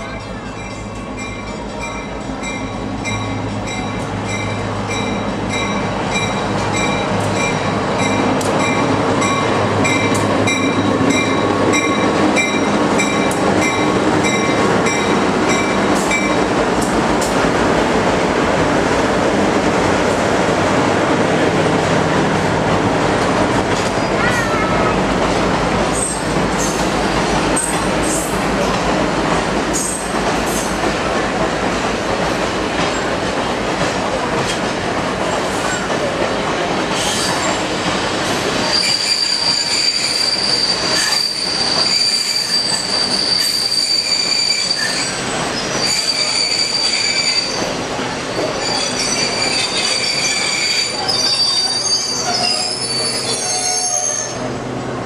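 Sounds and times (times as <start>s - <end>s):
train cars rumbling on rails: 0.0s - 55.0s
steel wheel squeal: 38.6s - 47.7s, 48.5s - 54.5s.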